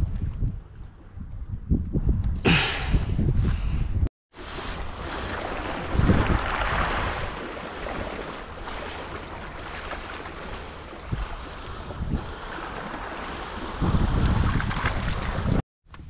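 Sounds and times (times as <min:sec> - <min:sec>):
wind buffeting microphone: 0:00.0 - 0:16.0
sea water lapping on rocks: 0:04.5 - 0:15.6.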